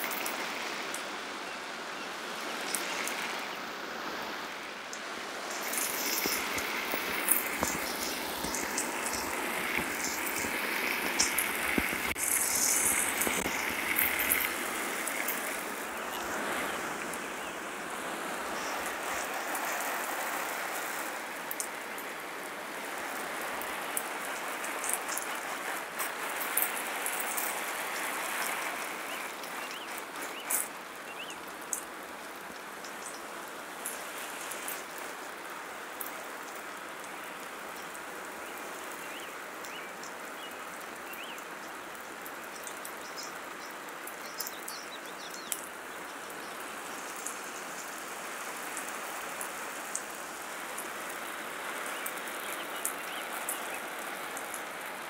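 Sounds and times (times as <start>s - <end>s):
garden hose spraying water: 0.0s - 55.0s
drops ticking: 5.5s - 16.3s.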